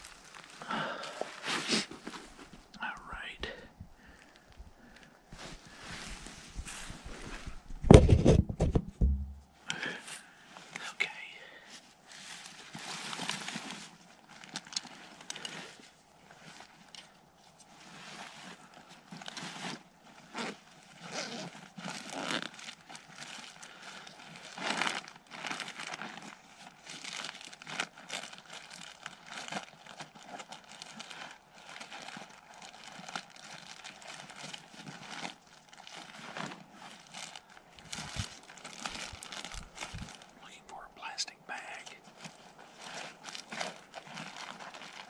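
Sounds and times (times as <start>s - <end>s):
footsteps crunching through dry leaves: 36.8s - 40.4s.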